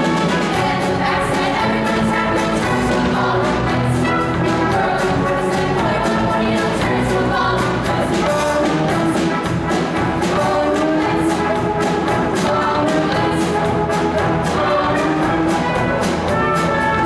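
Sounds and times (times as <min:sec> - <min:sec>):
band accompaniment: 0:00.0 - 0:17.0
quick drum beat: 0:00.0 - 0:17.0
women's choir singing: 0:00.4 - 0:09.2, 0:10.1 - 0:15.8.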